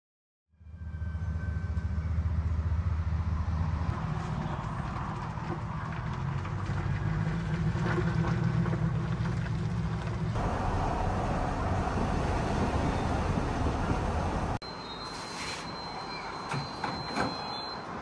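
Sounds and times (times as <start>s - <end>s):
road noise inside moving vehicle: 1.8s - 18.0s
vehicle engine running: 2.3s - 14.6s.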